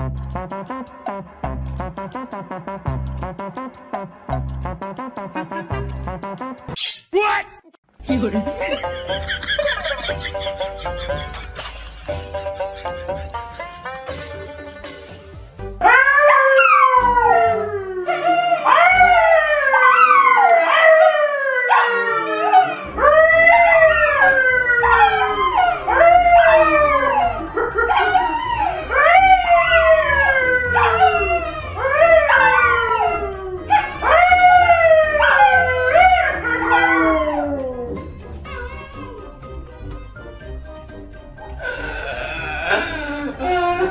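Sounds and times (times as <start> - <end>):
man howling: 15.8 - 39.3, 41.6 - 43.9
dogs howling: 15.8 - 39.4.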